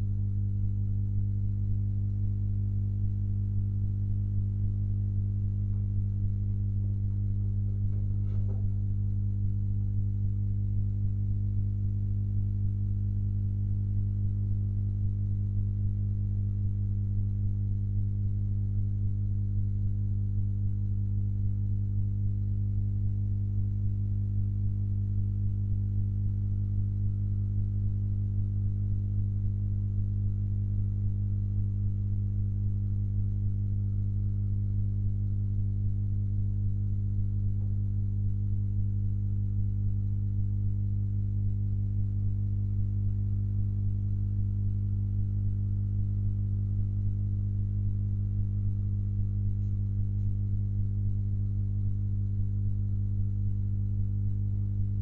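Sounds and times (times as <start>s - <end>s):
mains hum: 0.0s - 55.0s.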